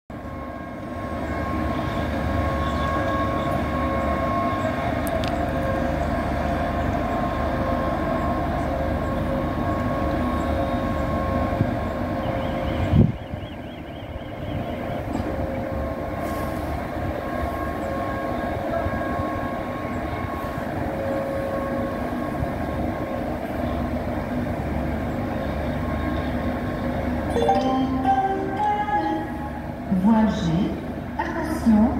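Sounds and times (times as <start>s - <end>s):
standing train mechanical hum: 0.1s - 31.9s.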